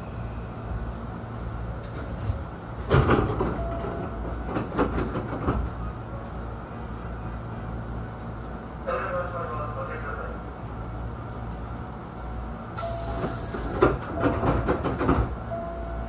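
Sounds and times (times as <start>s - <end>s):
electric train rumble: 0.0s - 16.0s
wheels clattering over track: 13.7s - 15.4s.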